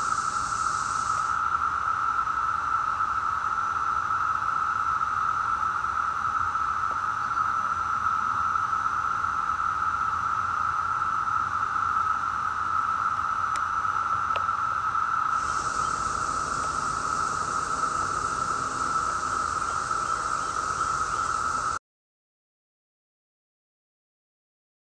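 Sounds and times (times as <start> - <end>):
cicadas droning: 0.0 - 21.8.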